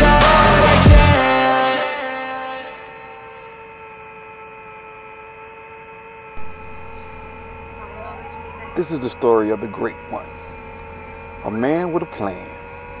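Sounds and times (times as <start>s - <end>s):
steady hum of held tones: 0.0s - 13.0s
low hum: 2.0s - 13.0s.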